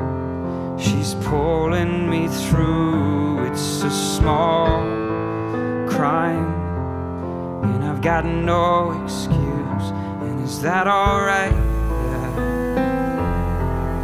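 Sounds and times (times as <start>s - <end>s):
grand piano chords: 0.0s - 14.0s
man singing: 0.8s - 14.0s.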